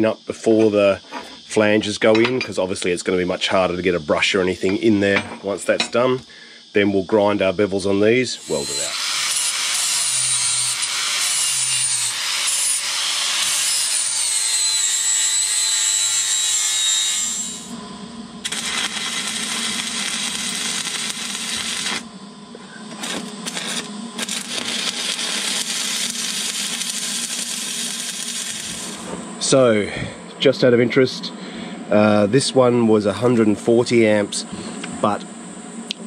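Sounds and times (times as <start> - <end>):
steady low hum: 0.0 - 9.6, 16.0 - 36.0
arc welding crackling hiss: 0.0 - 17.8, 18.4 - 30.0
angle grinder whining on steel: 8.4 - 17.8, 18.4 - 29.2.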